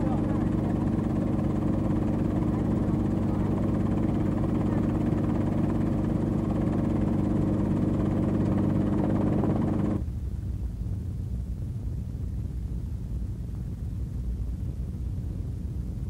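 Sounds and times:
helicopter engine and rotor drone: 0.0s - 10.0s.

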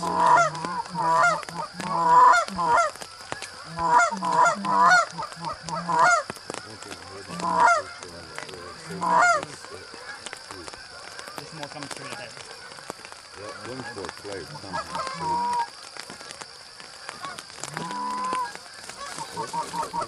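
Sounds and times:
goose honks: 0.0s - 3.0s, 3.6s - 6.3s, 7.2s - 10.2s, 13.4s - 15.7s, 17.2s - 20.0s.

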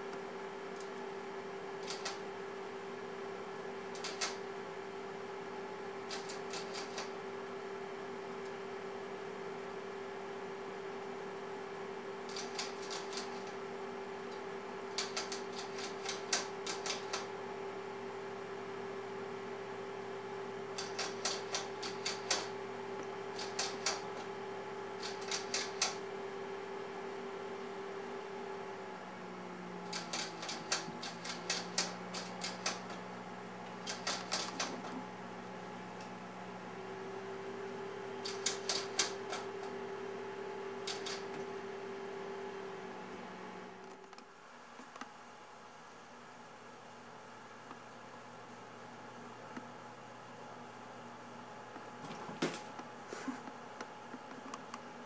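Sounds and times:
steady electrical hum: 0.0s - 55.0s
rapid small nibbling clicks: 1.8s - 2.2s, 4.0s - 4.4s, 12.3s - 13.5s, 15.0s - 17.3s, 20.8s - 22.5s, 23.4s - 24.1s, 25.0s - 26.0s, 29.9s - 33.0s, 33.9s - 35.0s.

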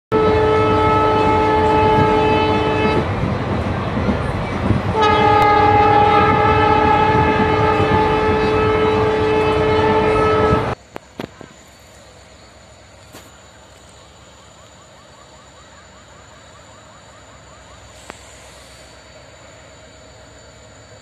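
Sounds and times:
locomotive horn blasts: 0.1s - 3.1s, 4.9s - 10.8s
train rumbling and clattering: 0.1s - 14.8s, 16.3s - 21.0s.

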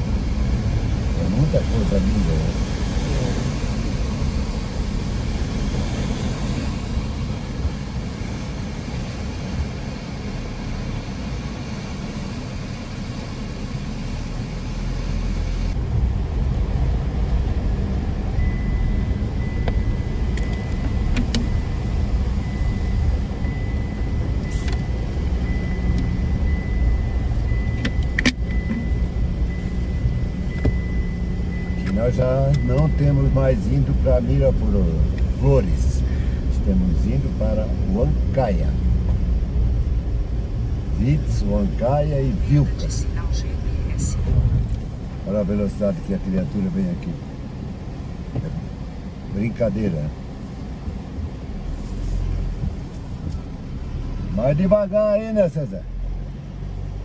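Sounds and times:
car engine and road rumble: 0.0s - 57.0s
faint steady high tone: 18.3s - 34.8s.

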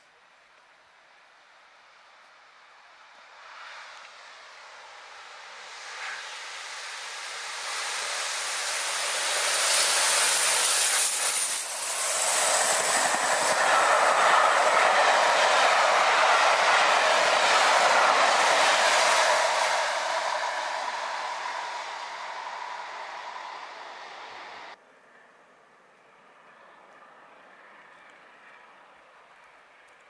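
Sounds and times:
steam locomotive passing: 2.6s - 24.8s
train coaches rushing past: 4.9s - 24.8s.

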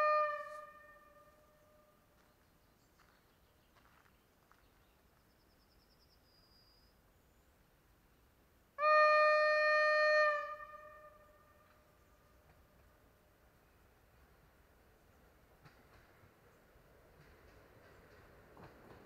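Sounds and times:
train horn long note: 0.0s - 2.0s, 8.8s - 12.6s.

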